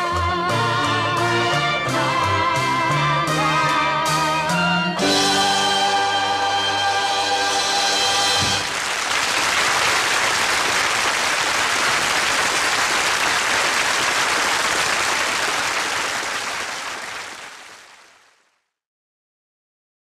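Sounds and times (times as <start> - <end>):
audience applause: 8.4 - 18.5.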